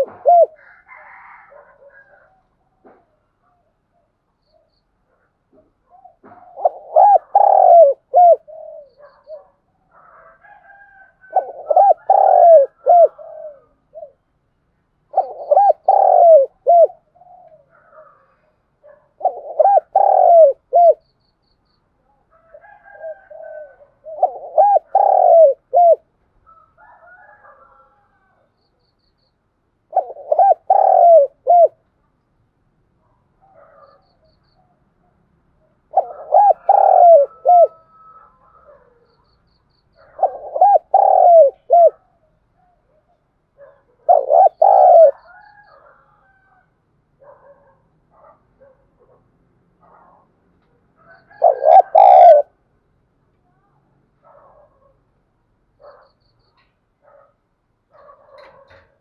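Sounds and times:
dove cooing: 0.0 - 3.2, 5.5 - 14.2, 15.1 - 21.0, 22.3 - 28.4, 29.9 - 31.8, 35.8 - 39.1, 40.0 - 46.6, 51.0 - 52.6, 57.9 - 59.0
faint bird calls: 0.0 - 14.4, 15.1 - 31.9, 33.1 - 49.2, 49.8 - 52.6.

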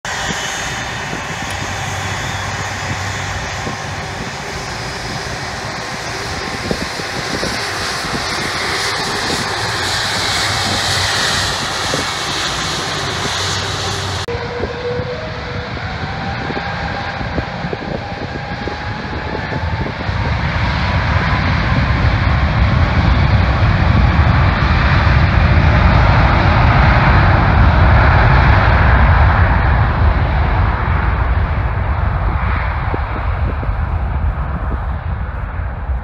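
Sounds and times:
jet engines rushing with whine: 0.0 - 36.0.

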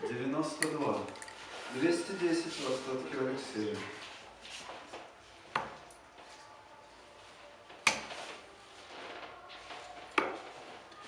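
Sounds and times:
darts hitting dartboard: 5.5 - 5.8, 7.8 - 8.2.

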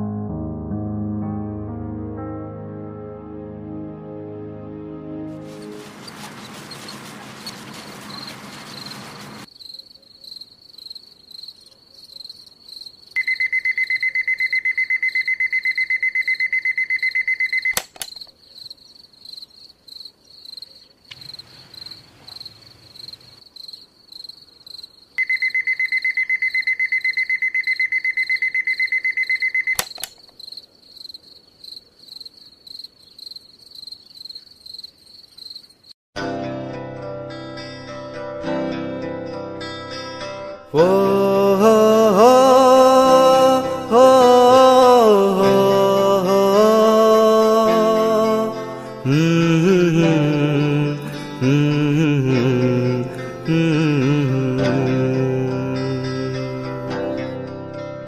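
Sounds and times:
alarm clock beeping rapidly: 13.2 - 17.8, 25.2 - 30.0
high pulsing chirp: 13.2 - 17.8, 25.2 - 29.9
sharp click: 17.7 - 18.4, 29.7 - 30.4.

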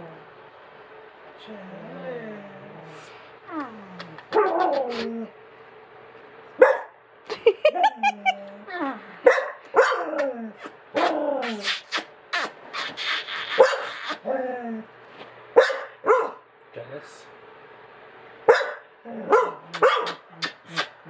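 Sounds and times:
dog whining and yowling barks: 18.5 - 20.2.

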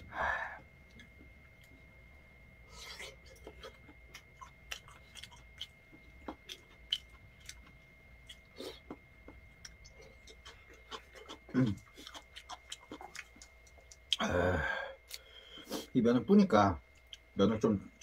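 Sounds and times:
faint steady high tone: 0.0 - 18.0
chewing: 2.7 - 14.3, 16.9 - 18.0.

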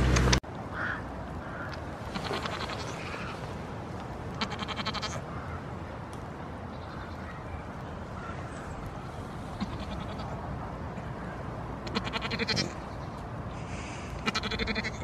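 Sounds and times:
goat bleating: 2.1 - 3.2, 4.4 - 5.2, 9.6 - 10.4, 11.8 - 12.8, 14.2 - 15.0.

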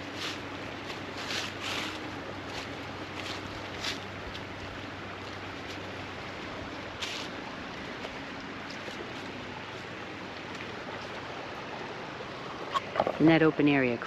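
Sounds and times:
footsteps crunching on dry leaves: 0.0 - 11.3
creek rushing: 0.0 - 14.0.

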